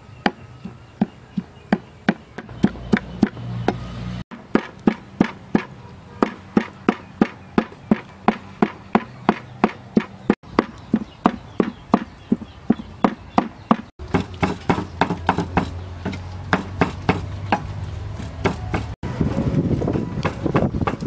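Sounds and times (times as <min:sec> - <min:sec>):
cleaver chopping on wooden block: 0:04.4 - 0:18.9.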